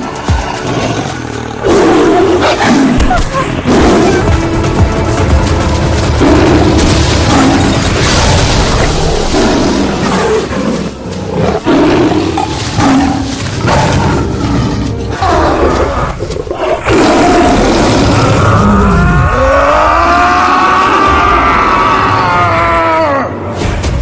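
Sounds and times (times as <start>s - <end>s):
tiger roaring and snarling: 0.0s - 4.4s, 6.0s - 23.2s.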